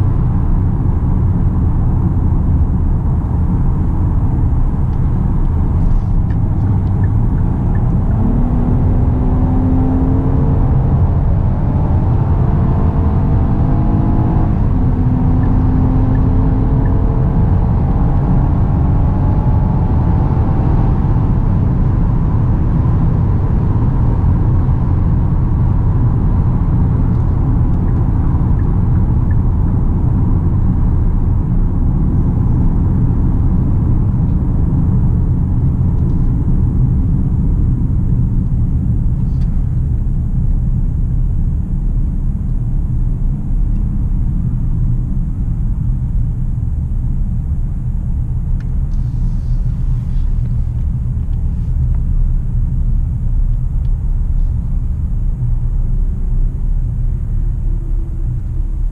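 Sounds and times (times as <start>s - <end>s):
car cabin road and engine rumble: 0.0s - 58.9s.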